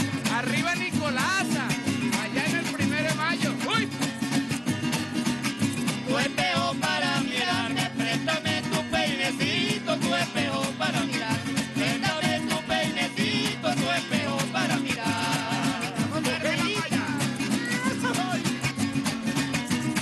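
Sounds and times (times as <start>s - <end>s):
strummed string ensemble: 0.0s - 20.0s.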